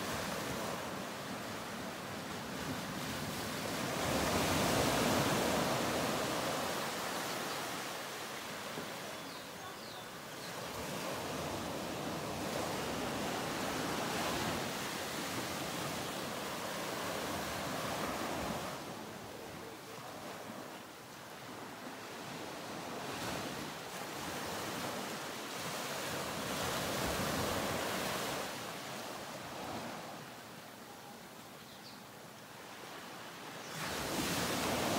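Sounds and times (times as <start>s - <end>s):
ocean waves rushing: 0.0s - 20.7s.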